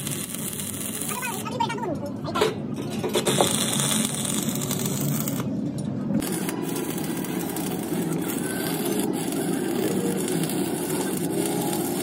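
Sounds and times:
welding arc crackling and hissing: 0.0s - 1.7s, 3.2s - 5.5s, 6.2s - 12.0s.

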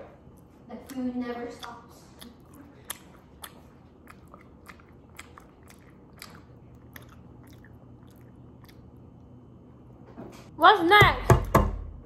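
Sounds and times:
wet chewing mouth clicks: 0.3s - 9.4s.

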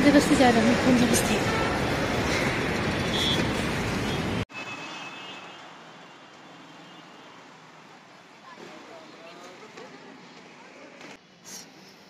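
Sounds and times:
loud road traffic rumble: 0.0s - 10.4s.

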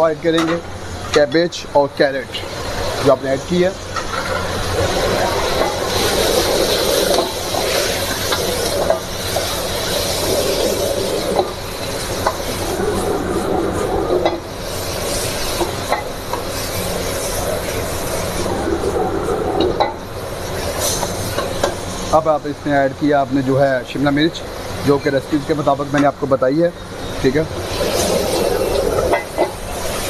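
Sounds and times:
gas burner rumble: 0.0s - 30.0s
food sizzling in a wok: 3.8s - 13.1s, 13.7s - 18.5s, 19.8s - 22.2s, 26.9s - 30.0s.

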